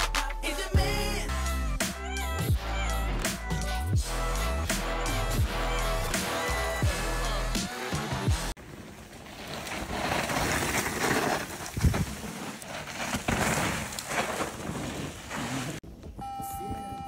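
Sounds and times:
bike tyres crunching over dirt: 0:08.6 - 0:16.0.

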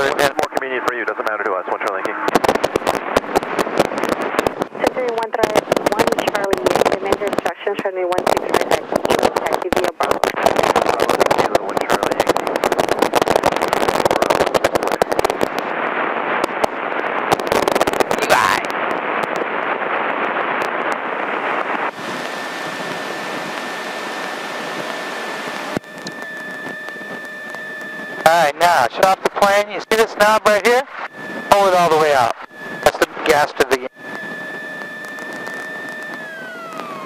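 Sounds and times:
aircraft engine through intercom: 0:00.0 - 0:02.2, 0:04.8 - 0:12.5, 0:21.9 - 0:34.2
crackling static: 0:00.0 - 0:37.0
steady hiss with high whine: 0:10.2 - 0:37.0.

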